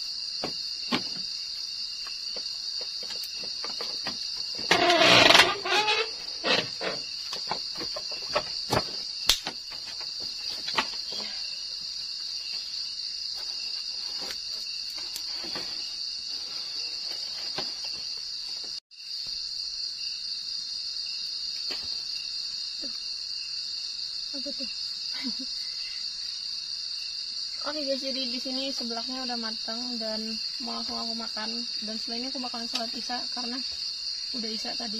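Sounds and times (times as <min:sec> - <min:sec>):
night insects chorus: 0:00.0 - 0:34.9
knocks and rustles on wooden floor: 0:00.4 - 0:01.3, 0:02.3 - 0:11.3.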